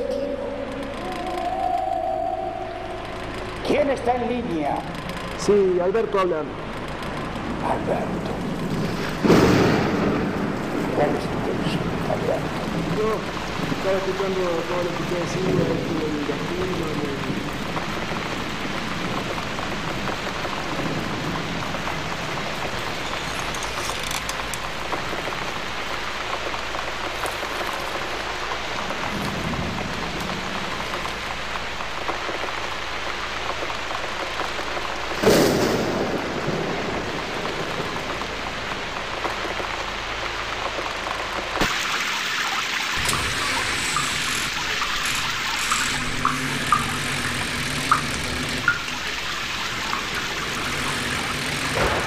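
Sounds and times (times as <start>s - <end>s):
steady rain: 0.0s - 52.0s
loud thunderclap: 7.4s - 16.5s, 33.5s - 39.7s, 50.7s - 52.0s.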